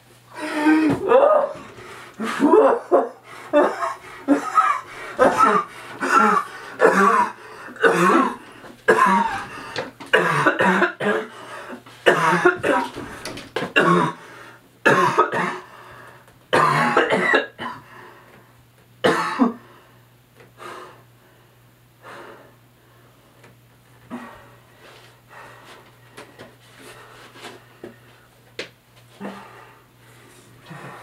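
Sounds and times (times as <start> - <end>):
low steady hum: 0.0 - 31.0
person coughing and hacking: 2.2 - 11.4, 12.0 - 13.0, 13.6 - 14.2, 14.8 - 15.7, 16.5 - 17.8, 19.0 - 19.6.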